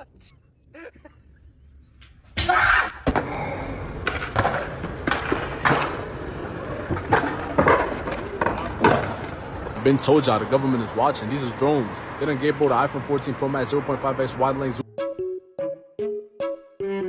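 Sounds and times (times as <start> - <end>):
skateboard clacks: 3.1 - 9.8
skateboard wheels rolling on asphalt: 3.5 - 14.4.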